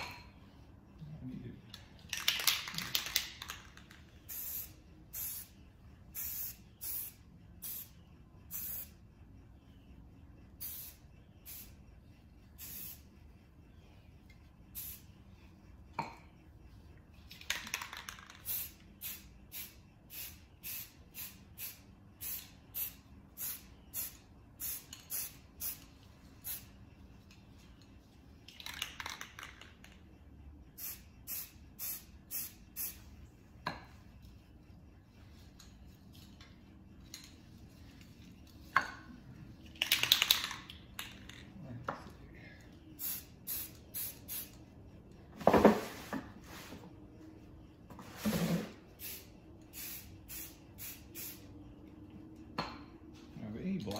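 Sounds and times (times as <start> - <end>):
spray paint can hissing: 2.2 - 9.0, 10.6 - 11.8, 12.6 - 13.1, 14.7 - 15.1, 17.3 - 26.8, 30.8 - 33.1, 43.0 - 44.6, 49.0 - 51.5.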